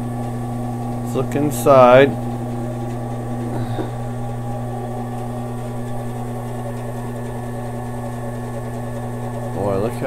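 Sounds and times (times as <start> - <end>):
bandsaw humming: 0.6 - 10.0.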